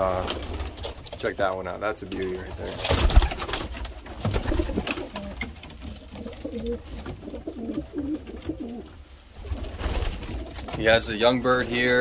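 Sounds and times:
pigeons cooing: 2.2s - 10.9s.

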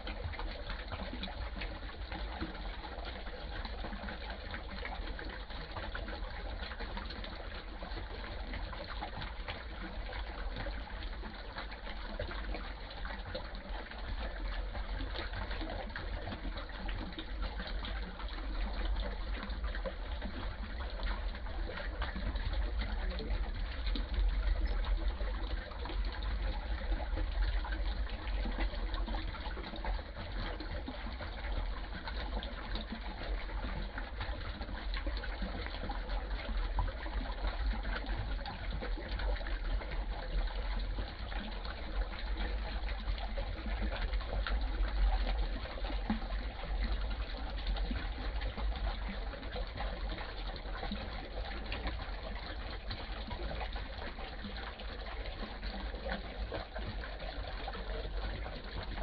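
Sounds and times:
stream trickling over stones: 0.0s - 59.0s.

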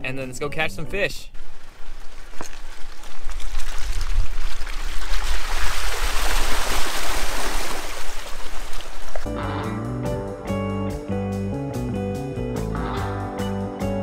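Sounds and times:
mud and water splashing: 1.4s - 9.3s.

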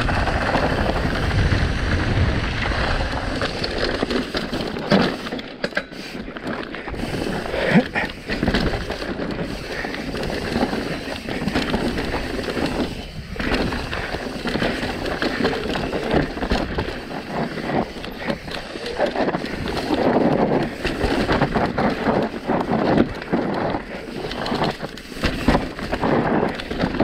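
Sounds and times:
wind rushing over microphone: 0.0s - 3.9s
mountain bike rattling and clattering: 0.0s - 27.0s.

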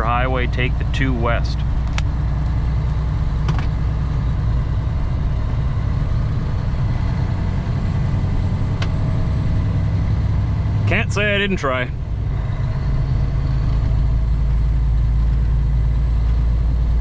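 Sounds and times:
road noise: 0.0s - 17.0s
truck diesel engine drone: 0.0s - 17.0s.

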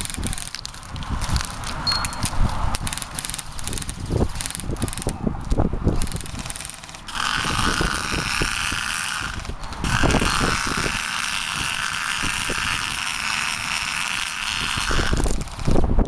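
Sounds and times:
airsoft minigun firing buzz: 6.0s - 15.9s.

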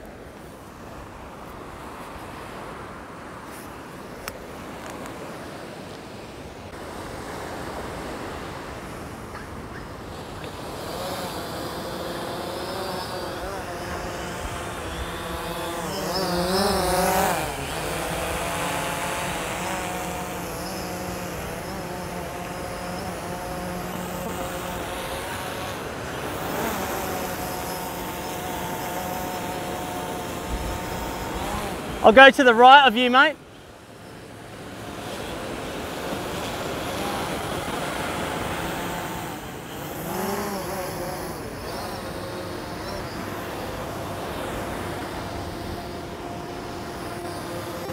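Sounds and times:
drone propellers buzzing: 6.8s - 47.9s.

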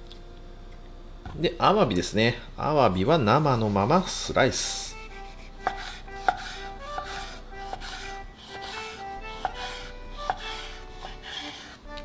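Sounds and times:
plucked background music: 0.0s - 12.0s
knife slicing on wooden board: 5.1s - 11.8s
blade tapping cutting board: 5.2s - 12.0s.

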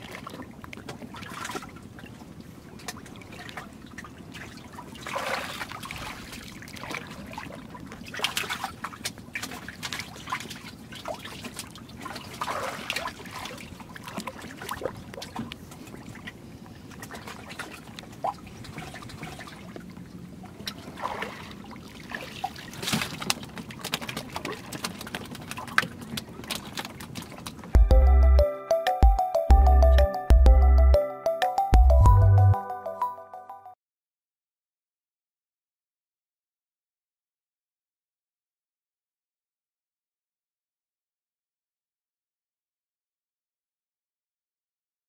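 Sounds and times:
water splashes: 0.0s - 27.8s
water trickling and sloshing: 0.0s - 27.8s.

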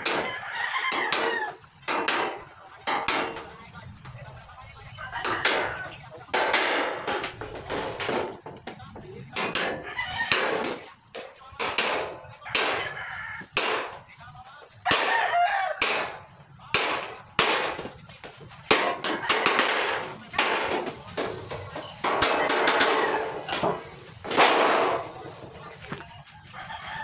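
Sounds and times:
rooster crowing: 0.0s - 1.6s, 4.9s - 6.0s, 9.8s - 10.6s, 12.4s - 13.6s, 14.9s - 16.2s, 26.4s - 27.0s
hammer striking metal tool: 1.9s - 3.5s, 18.7s - 25.2s.

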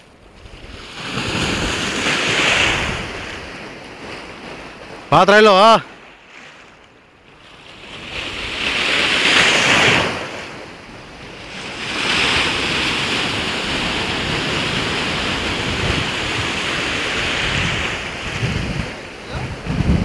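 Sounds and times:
wind on the microphone: 0.0s - 3.7s, 11.0s - 20.0s
sea waves rushing: 0.0s - 20.0s.

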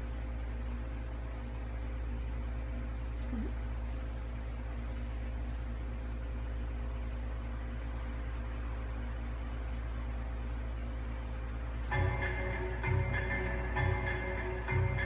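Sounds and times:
low hum with faint hiss: 0.0s - 15.0s.

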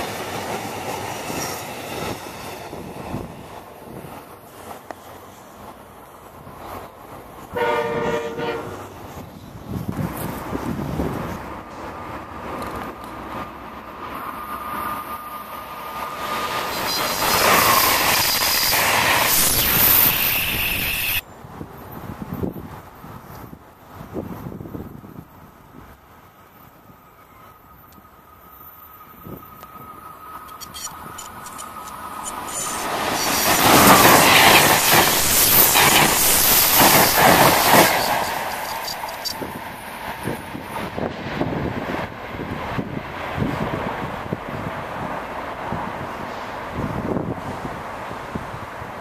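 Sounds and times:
faint wind noise: 0.0s - 49.0s
train wheels rushing on rail: 0.0s - 49.0s
steady high-pitched tones: 14.4s - 21.2s.

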